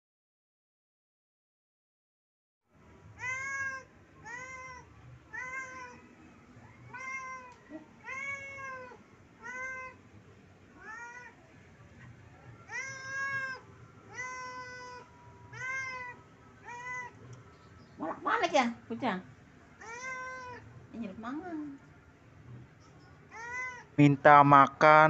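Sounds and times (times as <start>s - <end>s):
cat meowing: 3.2s - 10.0s, 10.8s - 17.3s, 19.8s - 20.7s, 23.3s - 24.0s.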